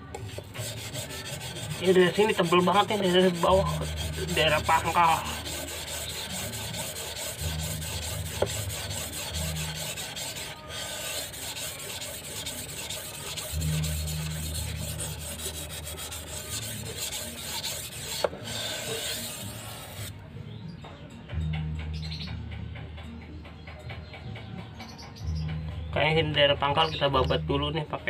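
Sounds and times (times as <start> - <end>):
blade rasping on whetstone: 0.0 - 20.1.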